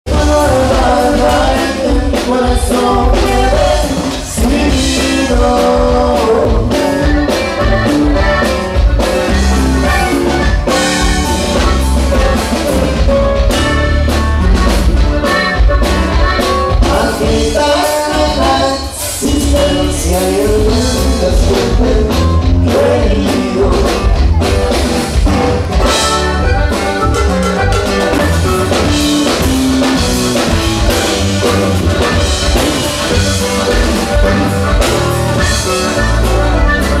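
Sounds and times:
drum kit: 0.0 - 37.0
man singing into microphone: 0.1 - 8.4, 16.7 - 24.4
bajo sexto strumming: 0.1 - 37.0
button accordion: 0.1 - 37.0.

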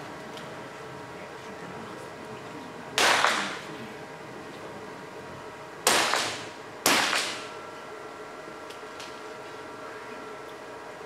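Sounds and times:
pistol shots reverberating: 3.0 - 3.6, 5.9 - 7.5.

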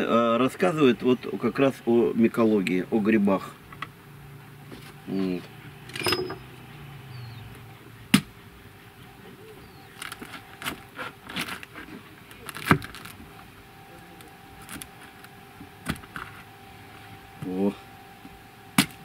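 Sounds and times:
hatchet chopping: 8.1 - 8.4, 18.8 - 19.0
blade crunching and scraping: 9.9 - 13.4.

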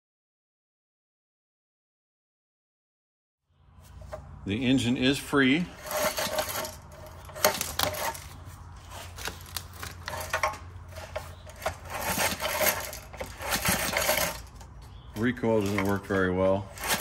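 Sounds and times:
recoil starter pulled by hand: 5.6 - 17.0
engine turning over with metallic clicks: 5.7 - 17.0.

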